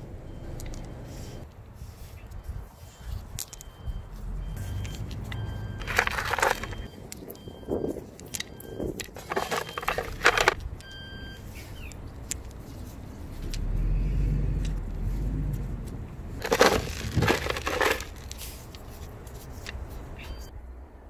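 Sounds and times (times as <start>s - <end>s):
hand crunching potting soil: 2.9s - 7.2s, 11.6s - 20.0s.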